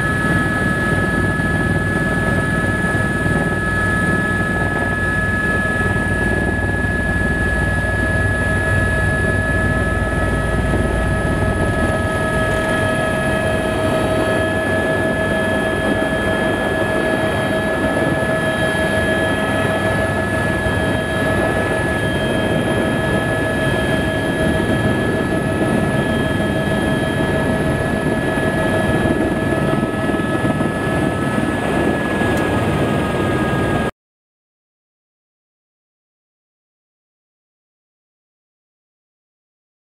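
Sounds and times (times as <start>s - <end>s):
helicopter turbine whine: 0.0s - 33.9s
rotor and engine noise: 0.0s - 33.9s
deep low rumble: 9.2s - 14.2s.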